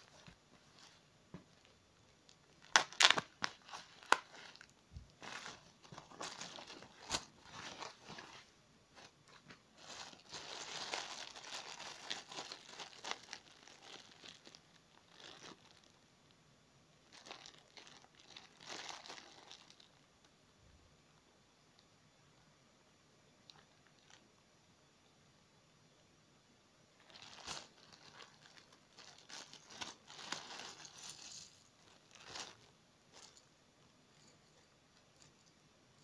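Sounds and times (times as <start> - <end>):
foam wrap and plastic bag rustling: 0.0 - 1.8, 2.4 - 16.0, 17.0 - 20.1, 27.0 - 33.5.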